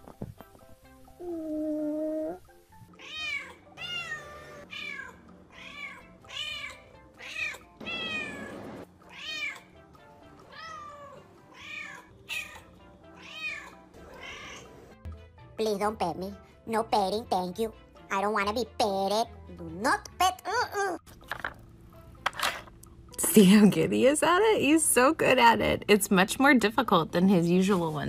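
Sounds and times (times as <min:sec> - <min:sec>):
cats meowing: 0:02.9 - 0:09.8, 0:10.4 - 0:14.8.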